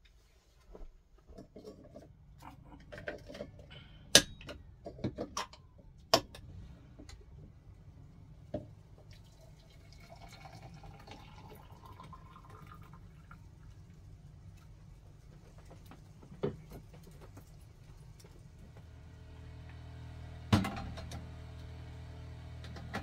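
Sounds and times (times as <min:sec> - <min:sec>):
kitchen items clicking and knocking: 0:01.4 - 0:06.4
water pouring from kettle: 0:09.0 - 0:14.0.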